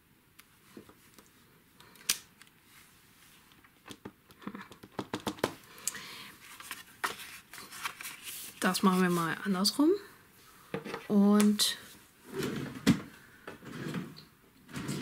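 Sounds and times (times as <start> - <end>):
rubber stamp clicks and taps: 3.9 - 5.6
paper rustle: 6.4 - 9.4.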